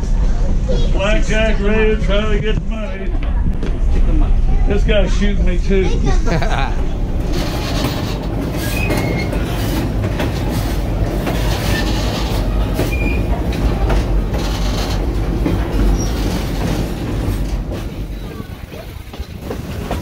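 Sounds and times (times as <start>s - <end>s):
train wheels rumbling on rails: 0.0s - 20.0s
high wheel squeals: 7.6s - 9.6s, 11.6s - 13.3s.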